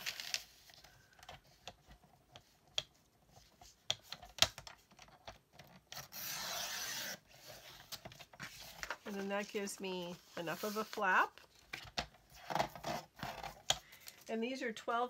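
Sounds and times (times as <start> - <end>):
paper rustling: 7.7 - 11.9.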